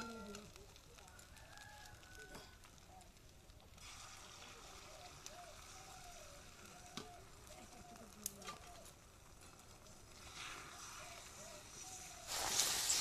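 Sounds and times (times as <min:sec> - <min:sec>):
egg sizzling in hot oil: 0:00.0 - 0:13.0
faint wavering calls: 0:04.6 - 0:09.0.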